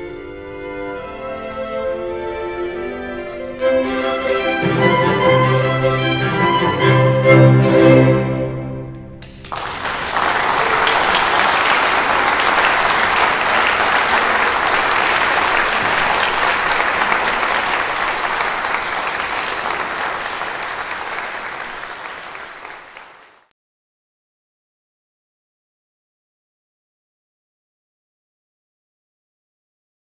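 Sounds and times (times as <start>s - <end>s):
audience applause: 9.2s - 23.5s.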